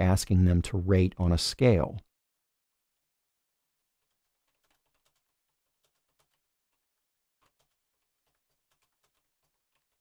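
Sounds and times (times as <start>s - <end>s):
faint keyboard typing: 2.4s - 10.0s.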